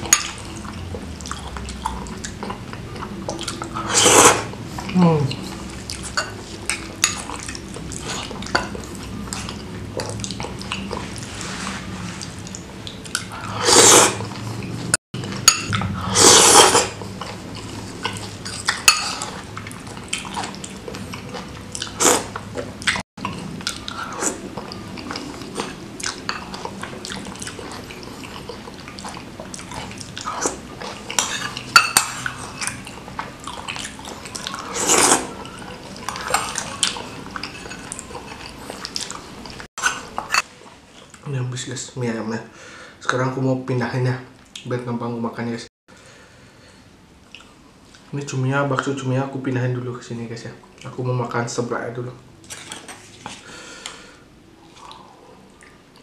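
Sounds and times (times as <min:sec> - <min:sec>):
noodle slurps: 0:03.8 - 0:04.5, 0:13.3 - 0:14.5, 0:16.0 - 0:17.0, 0:21.2 - 0:22.4, 0:33.7 - 0:35.4
wet chewing: 0:12.1 - 0:41.2.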